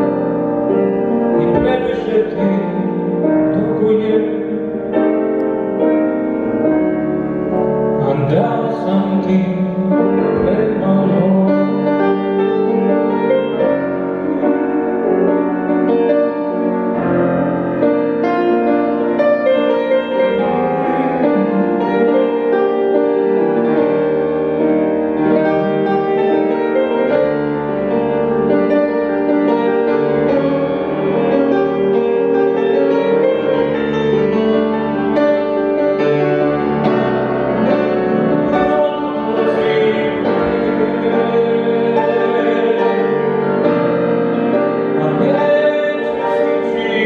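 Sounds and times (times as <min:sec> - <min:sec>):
solo piano playing: 0:00.0 - 0:47.0.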